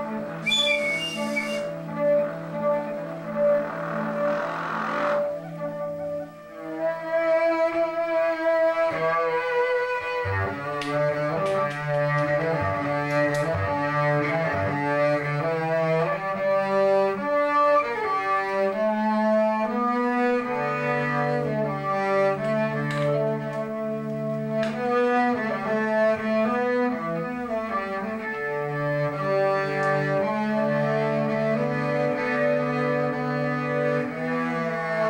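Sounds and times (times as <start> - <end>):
bowed double bass: 0.0 - 35.0
trumpet held tones: 0.3 - 5.5.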